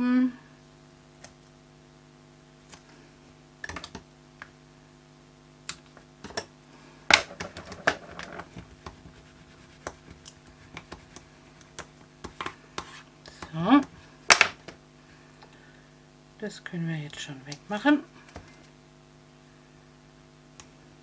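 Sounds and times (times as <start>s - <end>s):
hands handling paper and tape: 7.1s - 13.6s.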